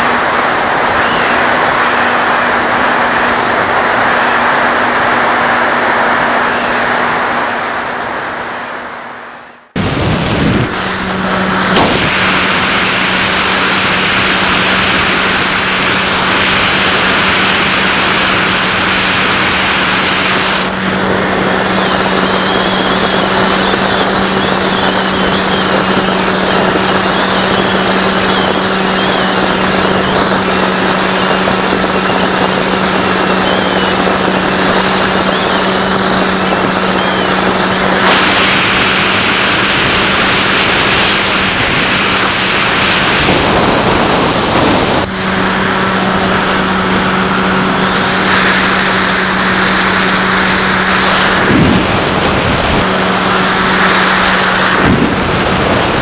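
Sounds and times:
electric motor and propeller running: 0.0s - 56.0s
wind rushing past camera: 0.0s - 56.0s
faint wavering whistle: 1.0s - 2.2s, 21.4s - 38.8s.

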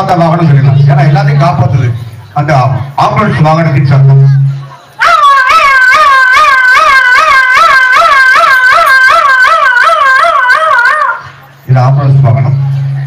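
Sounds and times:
man imitating a siren: 5.0s - 11.2s.

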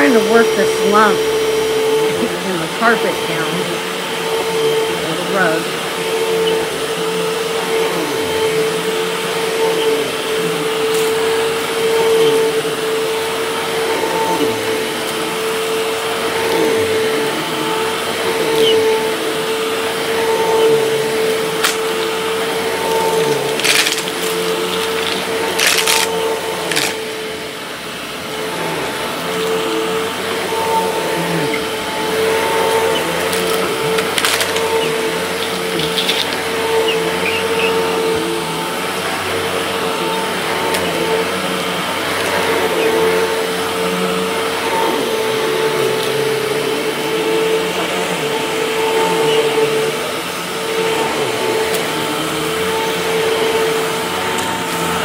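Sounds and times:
vacuum cleaner running: 0.0s - 55.0s
sharp crackles: 23.4s - 26.1s.

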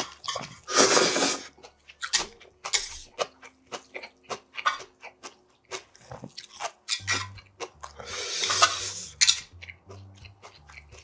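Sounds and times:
wet chewing clicks and smacks: 0.0s - 0.7s, 1.5s - 11.0s
noodle slurp: 0.6s - 1.5s.

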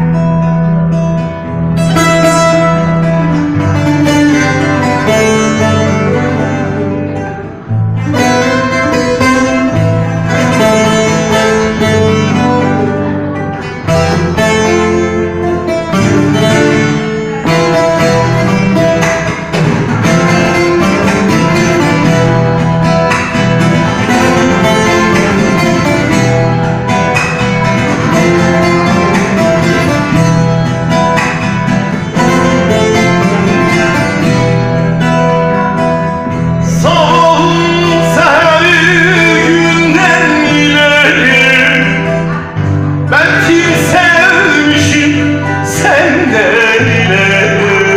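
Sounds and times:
long-necked lute picking a folk melody: 0.0s - 47.9s
man singing: 36.6s - 47.9s.

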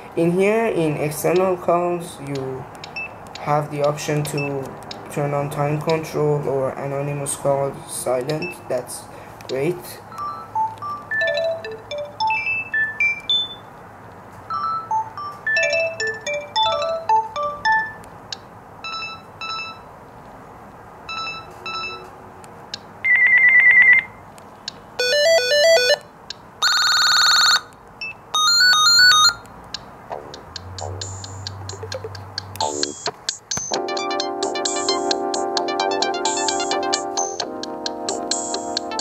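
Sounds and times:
electronic ringtone melodies: 10.1s - 13.8s, 14.5s - 18.0s, 18.8s - 19.9s, 21.1s - 22.1s, 25.0s - 26.0s, 26.6s - 29.4s, 30.1s - 39.0s
warbling phone ring: 10.2s - 13.7s, 25.0s - 26.0s, 26.6s - 27.6s, 28.4s - 29.4s.

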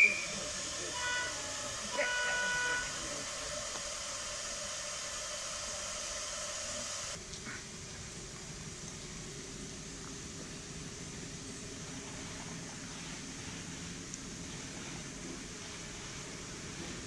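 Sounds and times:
model locomotive horn toots: 0.0s - 3.7s
steady hiss: 0.0s - 17.0s.

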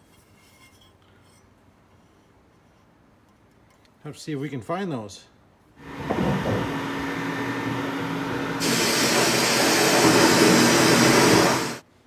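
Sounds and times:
blast cabinet hum: 5.8s - 11.8s
blast gun hissing air and grit: 8.6s - 11.8s.

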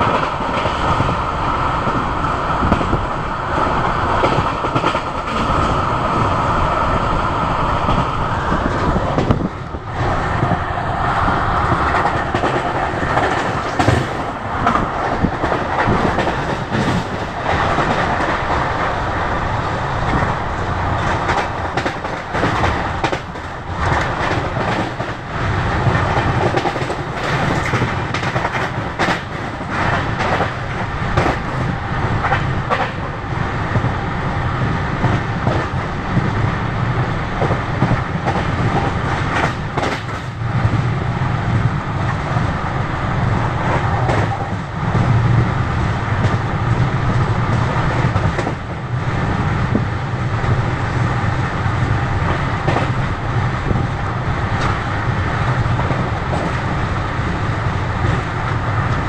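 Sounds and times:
train wheels rumbling on rails: 0.0s - 59.0s
wheels clicking over rail joints: 21.0s - 25.2s, 25.8s - 33.9s.

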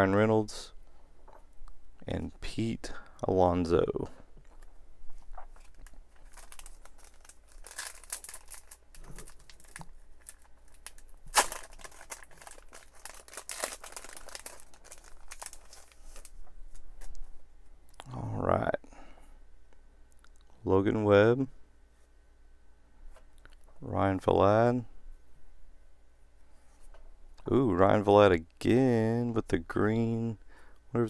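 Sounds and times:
shiny wrapper crinkling and tearing: 5.3s - 17.1s
sharp wrapper rip: 10.8s - 14.6s.

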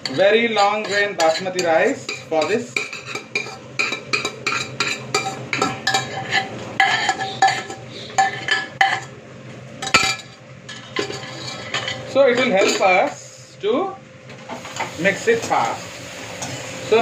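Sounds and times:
metal ladle scraping a pot: 0.0s - 9.2s, 9.9s - 12.9s.

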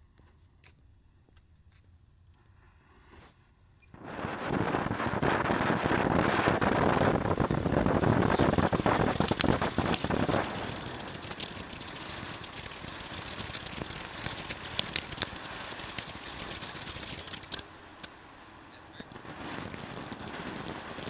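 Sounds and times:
firework crackles and pops: 3.9s - 21.0s
firework fountain hissing sparks: 3.9s - 21.0s.

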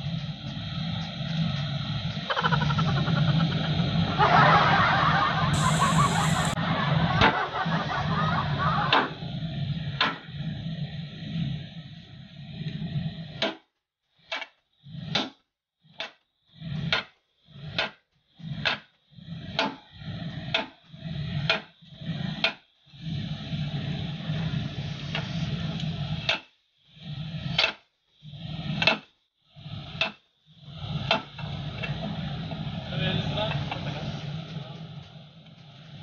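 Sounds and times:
low steady hum: 5.5s - 6.8s.

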